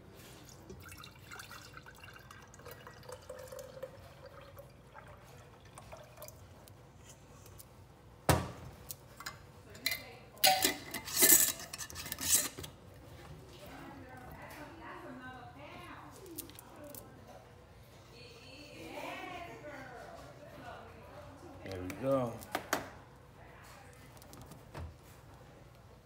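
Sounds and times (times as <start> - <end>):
liquid pouring into glass jar: 0.4 - 6.8.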